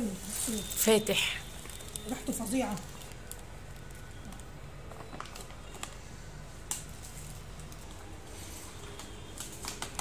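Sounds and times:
foil pouch crinkling: 0.3 - 4.5.

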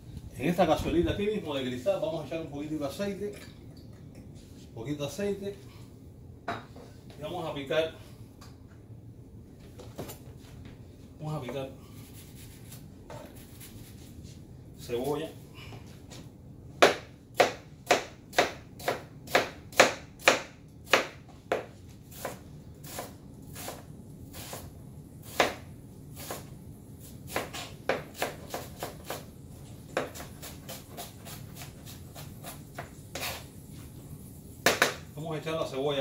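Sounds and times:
knife chopping on cutting board: 16.8 - 23.8, 25.3 - 25.6, 27.3 - 29.3, 29.9 - 33.4, 34.6 - 35.0.

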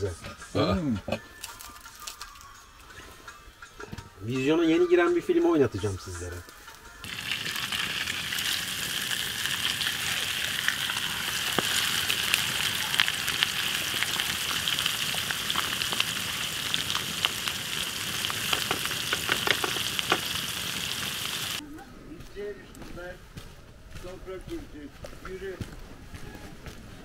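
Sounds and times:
food sizzling in a pan: 7.0 - 21.6
sharp popping of frying food: 7.0 - 21.6.

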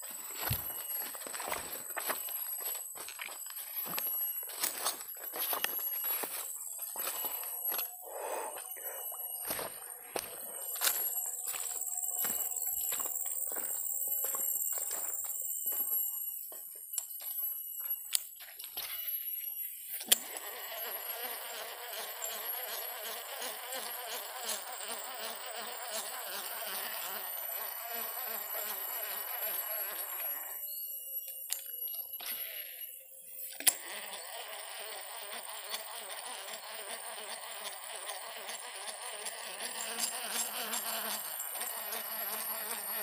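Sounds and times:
high-pitched whining tones: 0.0 - 22.9
insect chorus buzzing: 0.0 - 43.0.

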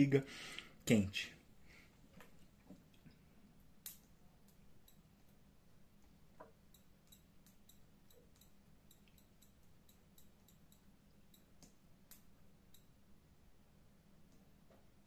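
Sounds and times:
faint steady hum: 0.0 - 15.0
faint high ticks: 3.8 - 5.1, 6.0 - 12.9.

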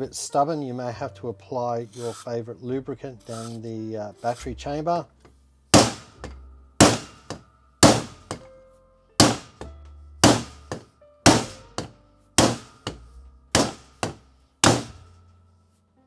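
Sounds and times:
hammer knocking on wooden dowel: 5.8 - 8.5, 9.2 - 15.0.

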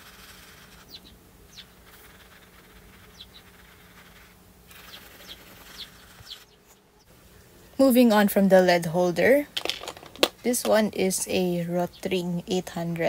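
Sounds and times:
pencil lead scratching on paper: 0.0 - 6.6.

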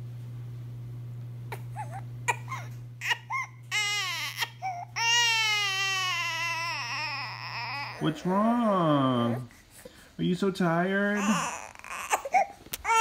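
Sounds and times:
infant crying: 1.5 - 9.5, 11.1 - 13.0.

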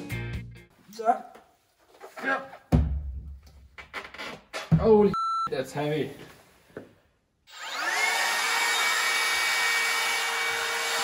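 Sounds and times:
electric motor whine: 7.5 - 10.8.

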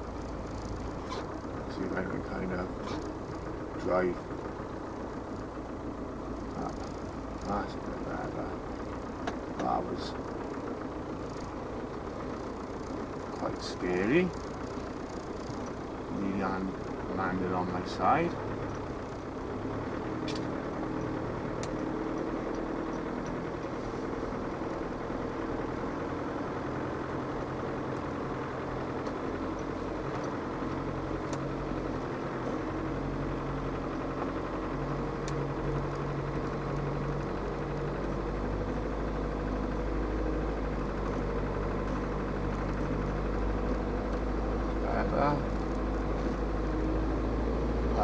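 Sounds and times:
diesel engine running: 0.0 - 48.0
faint clicks: 20.2 - 23.8.

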